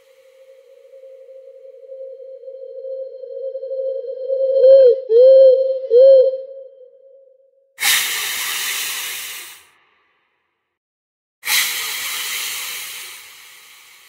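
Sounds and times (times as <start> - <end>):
hissing noise bursts: 7.8 - 9.7, 11.5 - 14.0.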